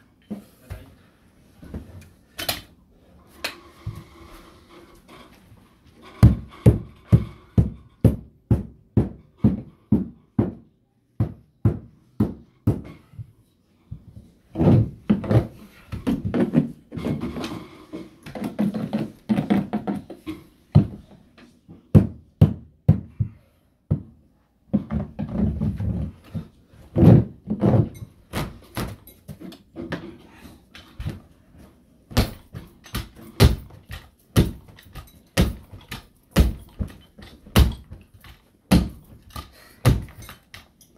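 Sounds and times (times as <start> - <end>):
hammer blows on carpeted stairs: 6.2 - 17.4, 18.3 - 30.0, 32.1 - 40.7.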